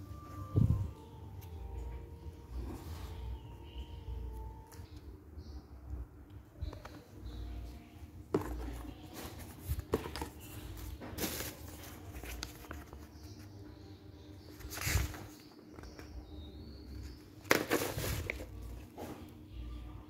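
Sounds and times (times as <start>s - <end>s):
packaging rustling and crinkling: 8.4s - 13.1s, 14.5s - 16.0s, 17.4s - 18.8s.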